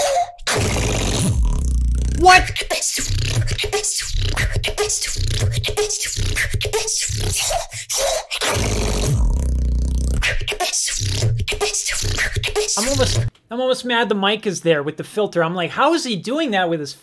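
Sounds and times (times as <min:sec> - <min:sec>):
boy beatboxing: 0:00.0 - 0:13.3.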